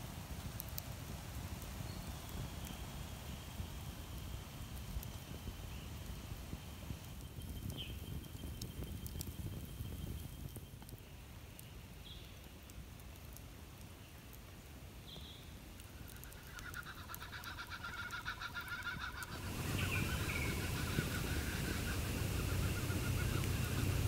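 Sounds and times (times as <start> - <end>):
high bird chirps: 16.3 - 24.0
low steady rumble: 17.9 - 24.0.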